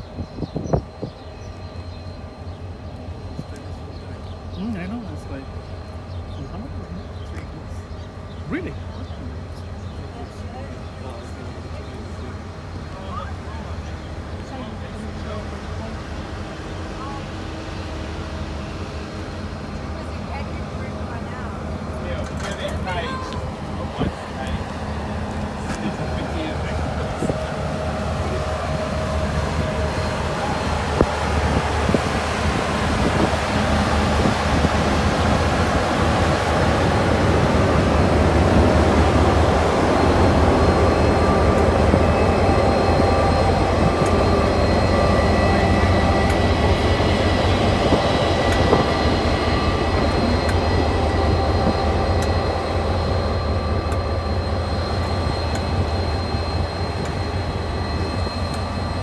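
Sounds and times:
locomotive engine drone: 0.0s - 59.0s
faint high whines: 36.1s - 59.0s.

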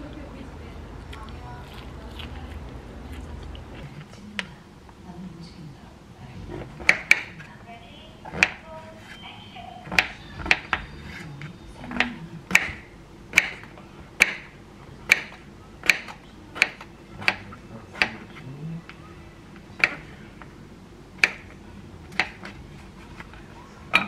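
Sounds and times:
knife chopping on cutting board: 12.5s - 18.3s.

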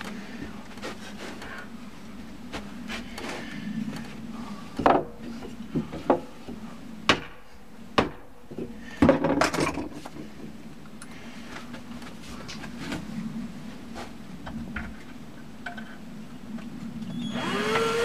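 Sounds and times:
wooden clatter: 8.5s - 10.6s.

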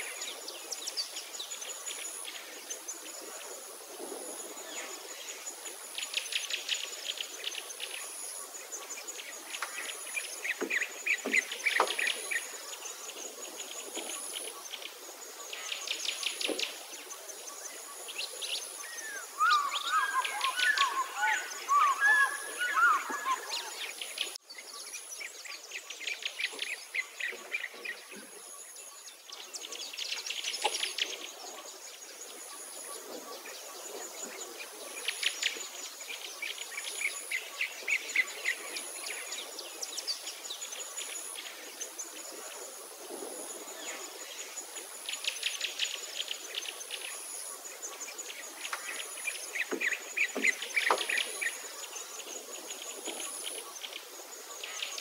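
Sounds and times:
birds chirping and trilling: 4.4s - 42.7s.

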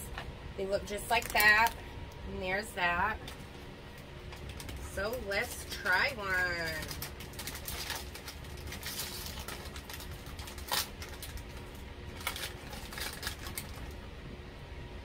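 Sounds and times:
plastic snack bag crackling: 1.0s - 1.8s, 4.3s - 14.0s.

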